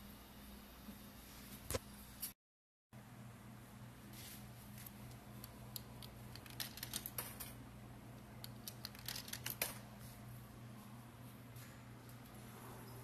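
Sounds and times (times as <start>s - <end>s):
steady low hum: 3.0s - 13.0s.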